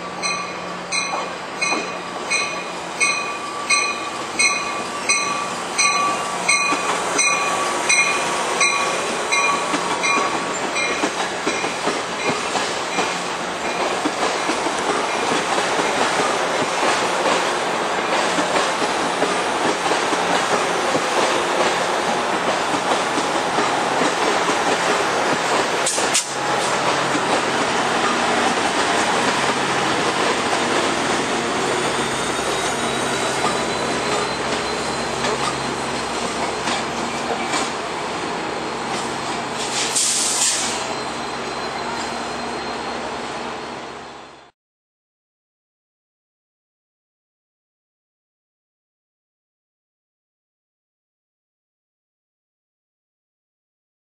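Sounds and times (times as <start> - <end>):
train bell ringing: 0.0 - 13.9, 32.0 - 36.6
train rumbling and clattering: 0.0 - 42.6.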